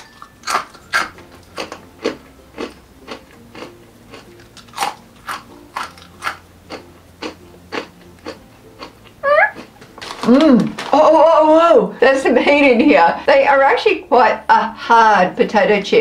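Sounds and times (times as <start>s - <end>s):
chewing crunchy potato chips: 0.0s - 11.0s.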